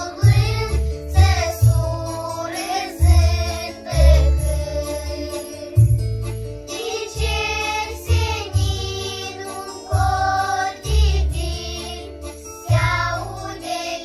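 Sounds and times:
children's choir singing: 0:00.0 - 0:06.0, 0:06.6 - 0:14.0
backing track with heavy bass: 0:00.0 - 0:13.9.

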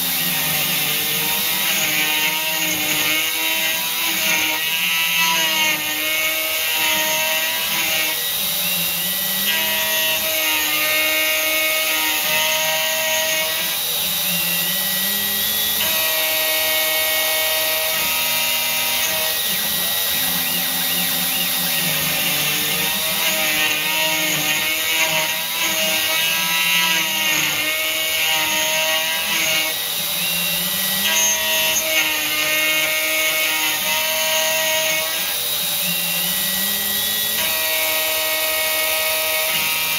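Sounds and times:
machine motor whine: 0:00.0 - 0:39.9
router spindle cutting metal: 0:00.0 - 0:39.9.

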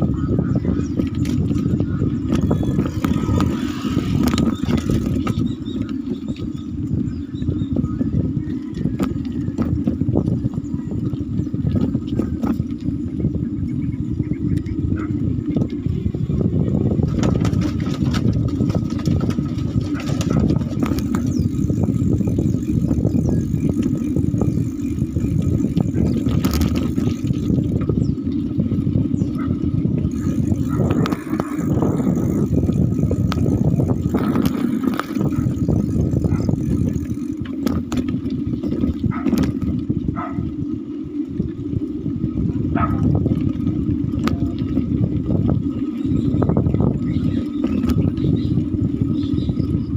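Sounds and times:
vehicle rumbling over rough road: 0:00.0 - 0:49.9
wind buffeting microphone: 0:00.0 - 0:49.9.

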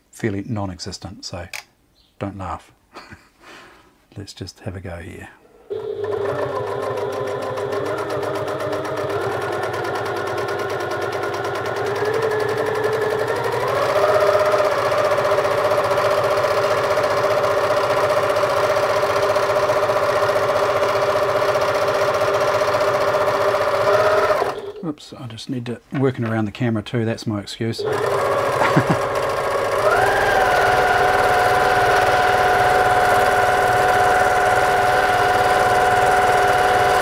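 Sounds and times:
sewing machine running: 0:05.7 - 0:24.8, 0:27.8 - 0:37.0.

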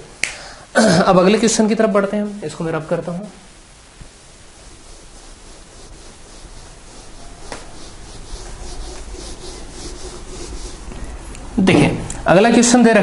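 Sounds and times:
eraser rubbing on whiteboard: 0:04.5 - 0:11.4.

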